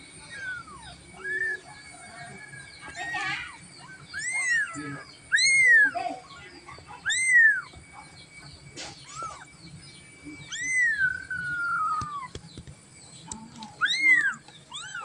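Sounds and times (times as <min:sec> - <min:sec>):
kittens mewing: 0:00.2 - 0:01.8, 0:02.9 - 0:08.2, 0:08.8 - 0:09.6, 0:10.2 - 0:12.4, 0:13.4 - 0:15.0.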